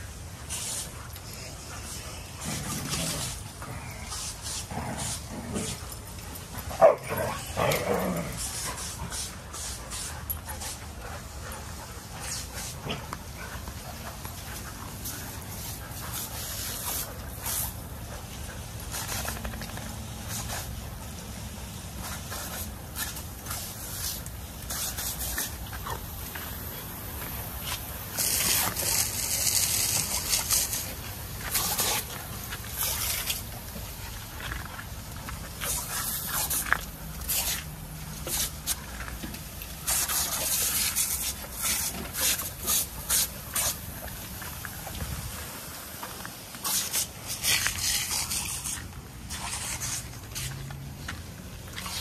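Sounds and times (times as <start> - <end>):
hose water splashing on paving: 0.0 - 52.0
dog paws pattering on wet ground: 0.3 - 52.0.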